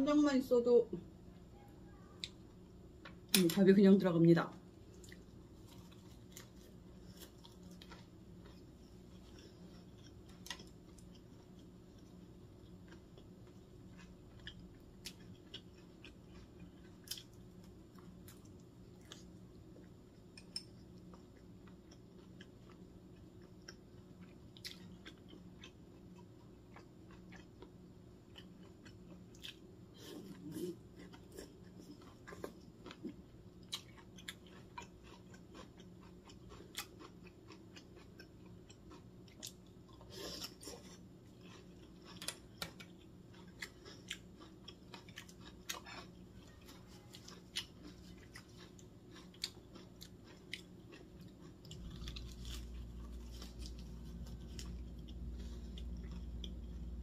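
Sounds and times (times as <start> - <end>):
low steady hum: 0.0 - 57.0
crunching lettuce: 39.4 - 57.0.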